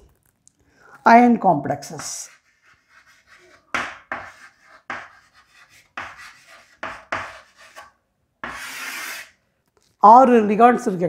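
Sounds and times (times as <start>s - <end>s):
pen scratching on paper: 2.0s - 7.8s.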